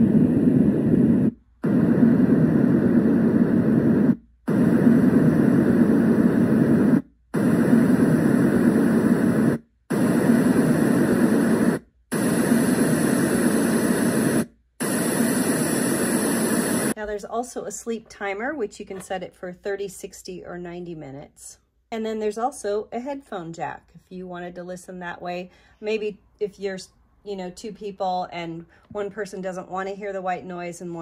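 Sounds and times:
white noise machine: 0.0 - 17.0.

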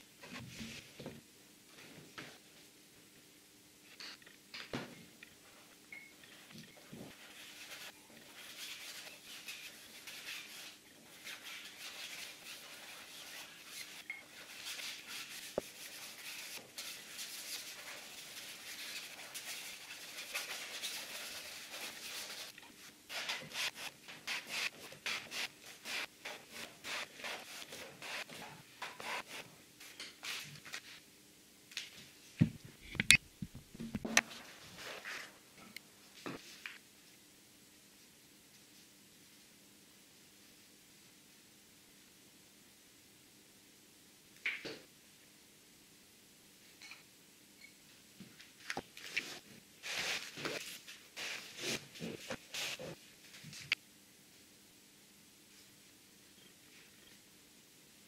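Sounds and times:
paintbrush scrubbing canvas: 7.1 - 29.5, 49.2 - 53.0.

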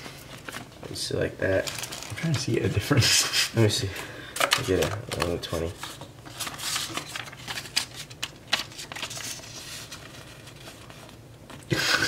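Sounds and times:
paper banknotes rustling: 4.5 - 11.2.

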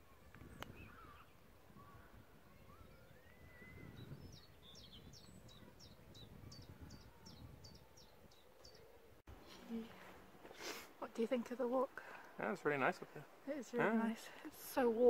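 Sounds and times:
wind rumble: 0.0 - 9.2.

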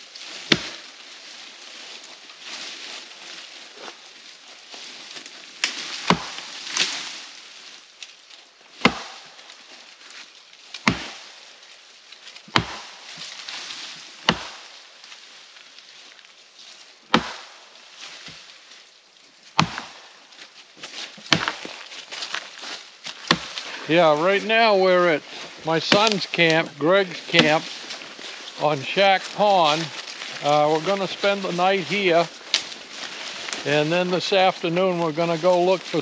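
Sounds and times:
branches rustling: 0.0 - 36.0
axe chopping wood: 0.4 - 0.8, 5.7 - 6.9, 8.8 - 9.4, 10.8 - 11.3, 12.5 - 13.1, 14.2 - 14.7, 17.1 - 17.6, 19.6 - 20.1, 20.9 - 21.8, 23.2 - 23.6, 27.4 - 27.6.

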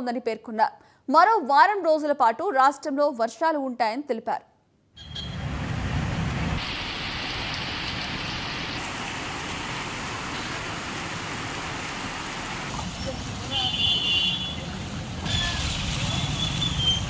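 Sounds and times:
heavy rain on road: 5.3 - 17.0.

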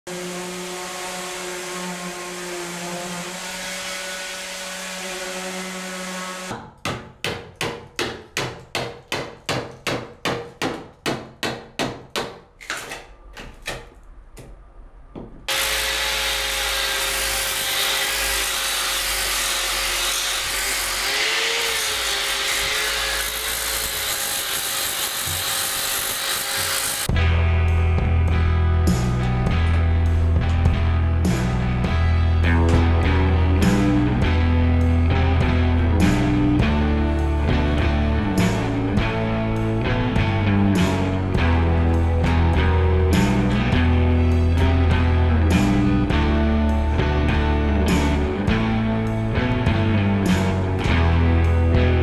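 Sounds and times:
power sander grinding with whine: 0.1 - 6.5
power tool humming: 0.1 - 6.5, 15.5 - 27.1
hammer striking chisel: 6.5 - 14.6, 23.3 - 27.1.

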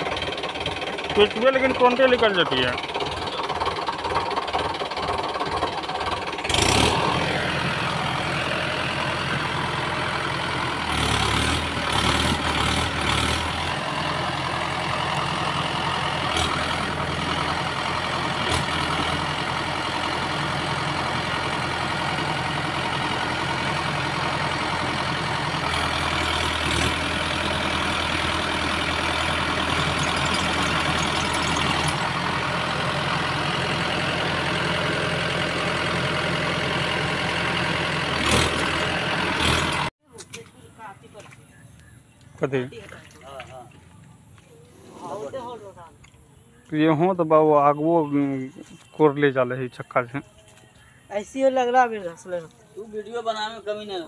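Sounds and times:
tractor diesel engine running: 0.0 - 42.7.

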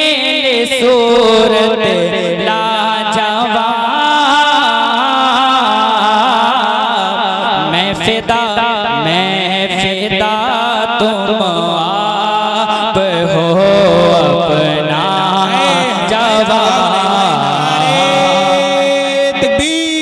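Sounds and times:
man singing ornamented notes: 0.0 - 20.0.

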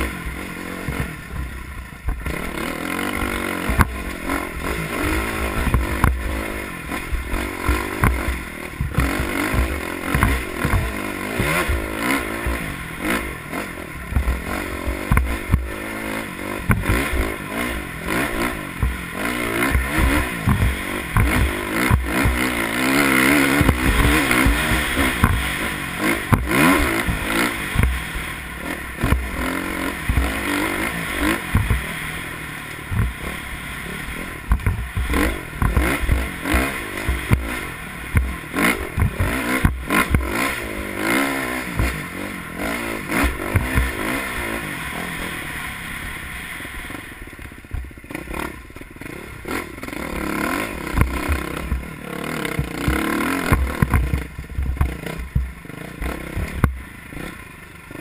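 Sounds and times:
dirt bike engine revving: 0.0 - 58.0
bike knocking on rocks: 7.1 - 12.6, 19.7 - 22.5, 23.3 - 28.1, 31.5 - 31.9, 34.4 - 37.6, 52.6 - 55.6.

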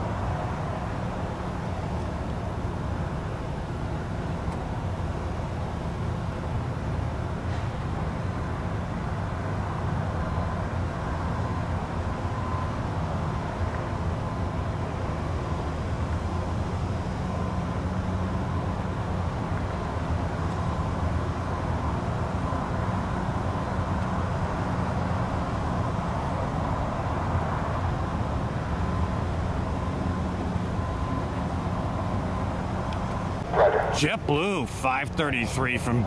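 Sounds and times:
low engine rumble: 28.0 - 36.0.

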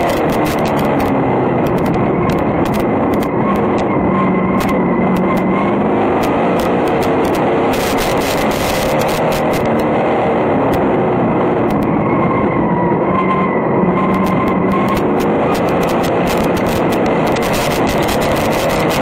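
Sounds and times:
race car engine running loud: 0.0 - 19.0
dirt ticking on car body: 14.2 - 19.0.

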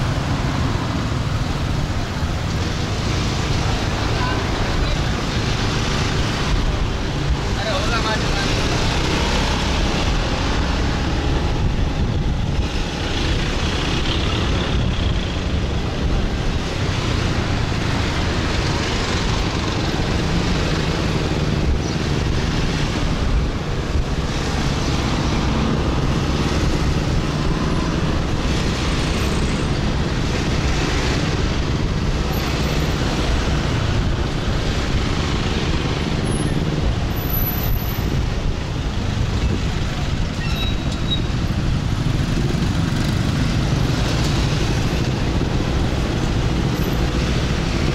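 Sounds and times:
road and traffic noise: 0.0 - 47.9.

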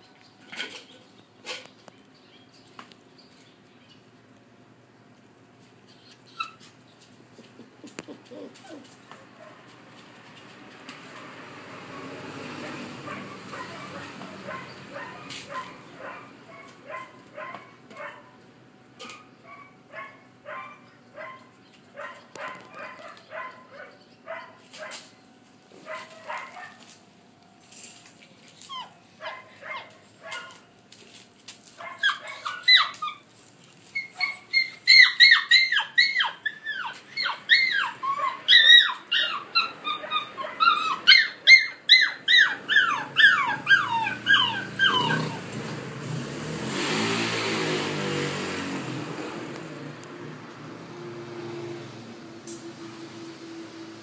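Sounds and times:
puppies yipping and barking: 5.8 - 9.8, 11.2 - 18.4, 19.0 - 25.0, 25.8 - 26.9, 28.2 - 30.7, 31.6 - 45.8.

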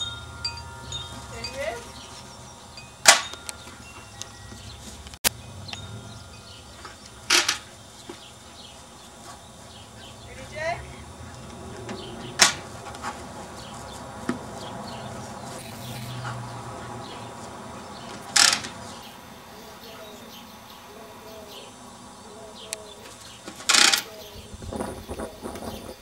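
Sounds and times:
faint chirps: 14.9 - 18.2.

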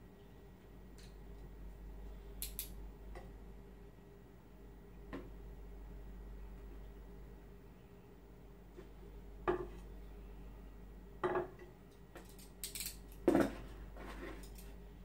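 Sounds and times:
faint steady low hum: 0.0 - 15.0
light sharp clicks and clinks: 2.4 - 2.8, 11.9 - 13.2, 14.3 - 14.8.

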